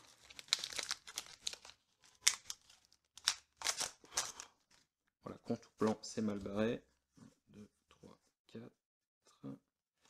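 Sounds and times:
foil wrapper crinkling and tearing: 0:00.0 - 0:04.8.

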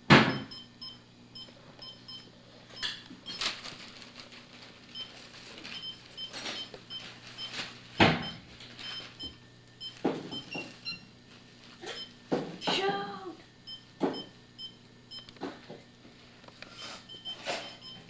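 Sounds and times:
paper crinkling: 0:03.3 - 0:09.2.

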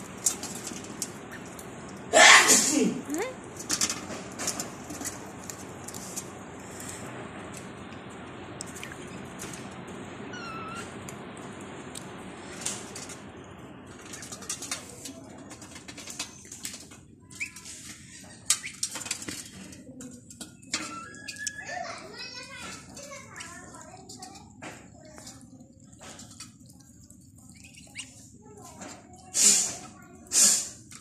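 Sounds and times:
ducks pecking grain: 0:00.0 - 0:02.4, 0:03.0 - 0:31.0.

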